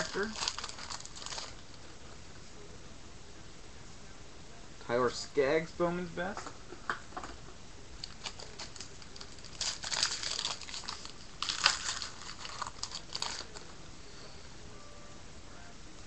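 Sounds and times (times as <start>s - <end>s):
foil wrapper crinkling: 0.0s - 1.7s, 8.0s - 13.7s.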